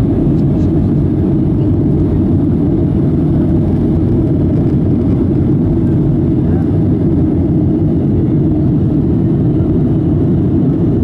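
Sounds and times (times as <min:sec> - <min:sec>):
jet engine cabin rumble: 0:00.0 - 0:11.0.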